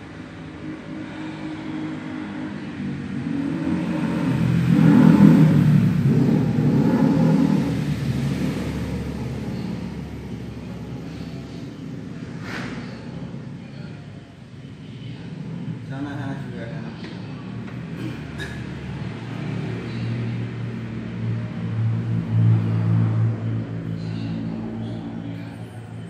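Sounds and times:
vehicle engine passing by: 0.0 - 26.0.

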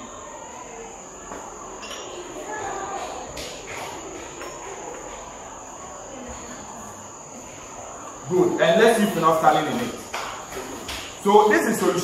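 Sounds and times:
cricket trill: 0.0 - 12.0
faint room noise: 0.0 - 12.0
glassware clinking: 1.8 - 2.3.

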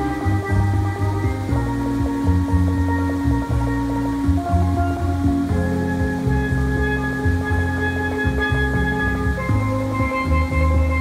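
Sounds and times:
low bass line: 0.0 - 11.0
steel pan melody: 0.0 - 11.0.

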